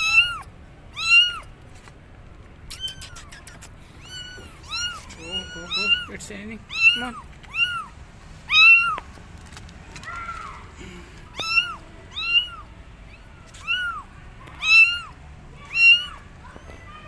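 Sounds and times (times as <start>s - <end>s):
kittens meowing loudly: 0.0s - 1.5s, 2.7s - 9.1s, 11.3s - 17.0s.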